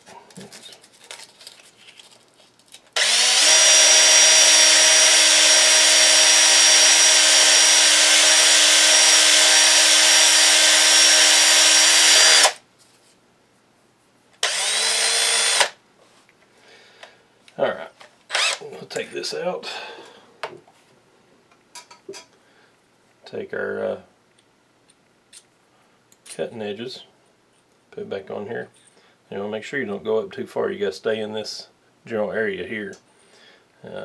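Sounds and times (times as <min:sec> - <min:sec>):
cordless drill motor whine: 0:03.0 - 0:12.6, 0:14.4 - 0:15.8, 0:18.3 - 0:18.6.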